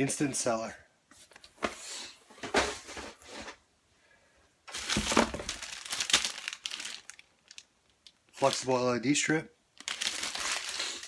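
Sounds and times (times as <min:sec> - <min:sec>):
plastic bag crinkling: 0:04.7 - 0:08.8, 0:09.8 - 0:11.0.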